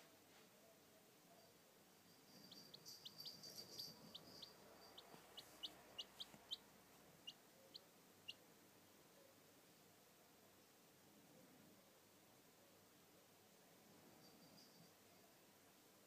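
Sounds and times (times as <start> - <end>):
chick peeping: 2.4 - 8.4.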